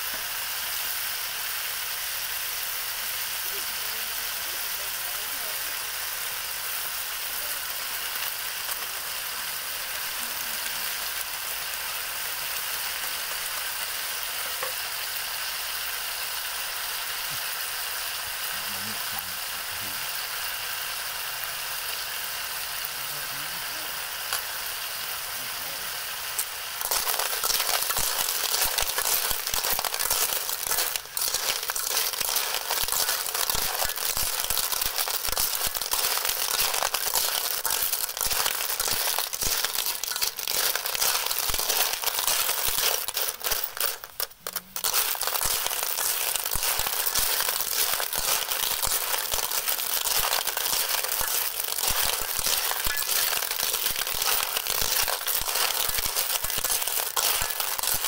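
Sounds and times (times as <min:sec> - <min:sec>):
shells clattering in a steel wok: 0:12.6 - 0:15.0, 0:24.3 - 0:24.6, 0:26.3 - 0:58.0.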